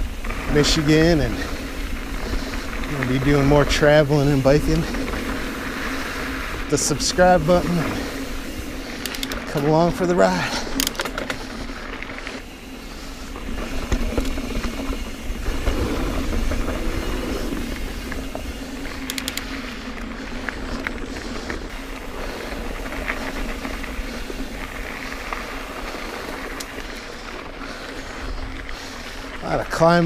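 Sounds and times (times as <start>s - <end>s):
bike rattling: 0.0s - 30.0s
tyres rolling over dirt: 0.0s - 30.0s
sharp clicks: 9.0s - 9.7s, 10.7s - 11.4s, 19.0s - 19.8s.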